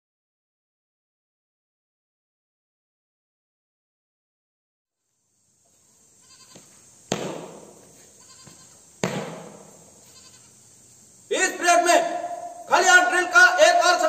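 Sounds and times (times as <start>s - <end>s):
boot stamps on concrete: 6.5s - 9.8s.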